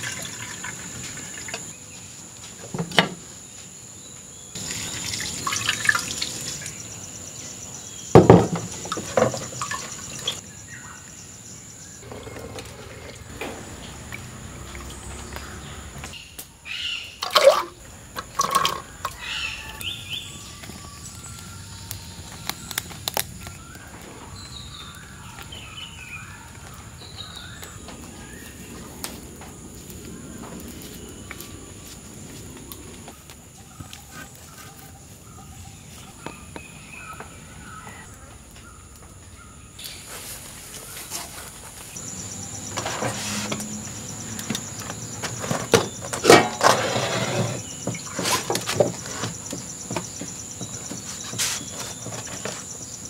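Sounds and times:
water sloshing and splashing: 0:04.6 - 0:06.9, 0:08.4 - 0:10.4, 0:12.0 - 0:15.9, 0:17.2 - 0:19.3.

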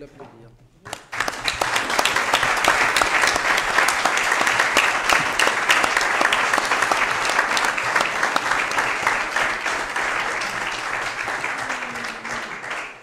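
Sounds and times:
crowd applauding: 0:00.8 - 0:13.0.

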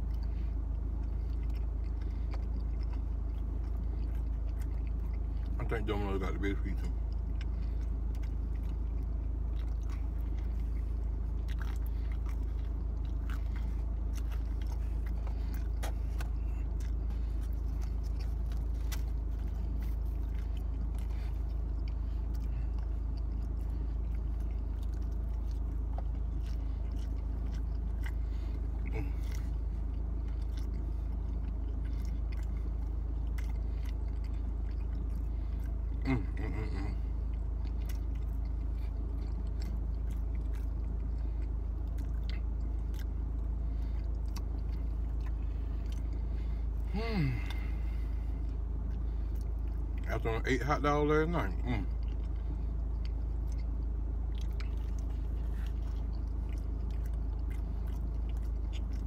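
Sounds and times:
person chewing pizza: 0:00.0 - 0:59.0
small crunches and mouth clicks: 0:00.0 - 0:59.0
steady low hum: 0:00.0 - 0:59.0.

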